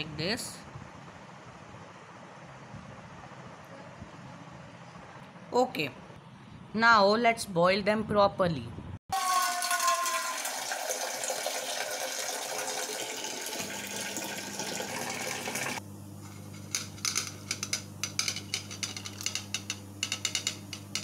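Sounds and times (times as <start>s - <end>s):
tap water running into saucepan: 9.2s - 15.8s.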